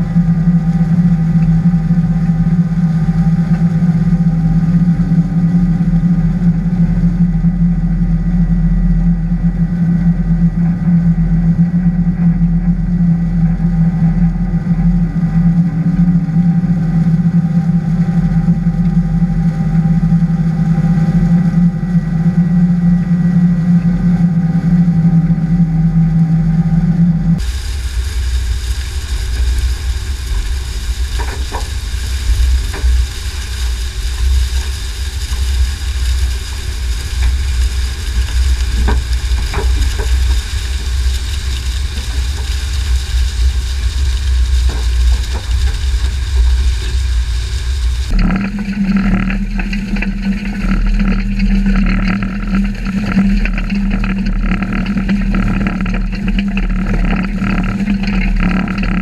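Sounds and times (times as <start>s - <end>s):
farm machinery drone: 0.0s - 59.0s
blades crackling through stalks: 26.9s - 59.0s.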